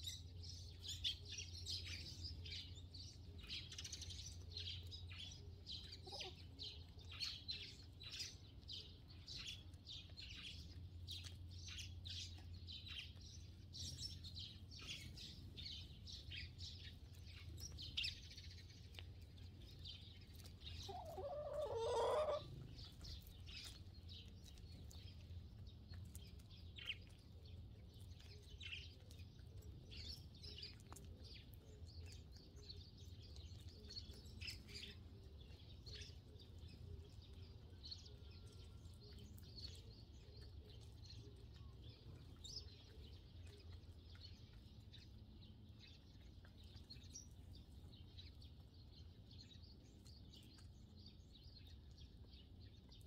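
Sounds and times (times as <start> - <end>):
low steady hum: 0.0 - 53.0
sparrows chirping: 0.0 - 53.0
chicken clucking: 5.8 - 6.5, 20.4 - 23.0.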